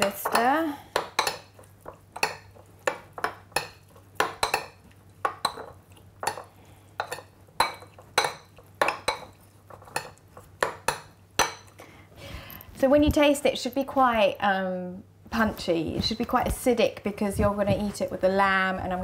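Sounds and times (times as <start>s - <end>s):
spoon stirring wet dressing: 0.0s - 11.9s.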